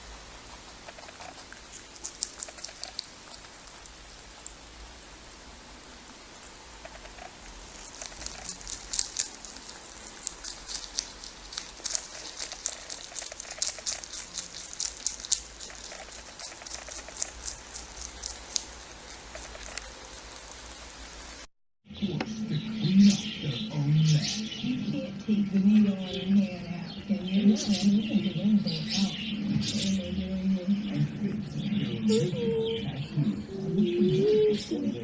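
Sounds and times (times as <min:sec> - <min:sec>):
rabbit crunching leaves: 0:00.5 - 0:03.9, 0:06.9 - 0:21.4.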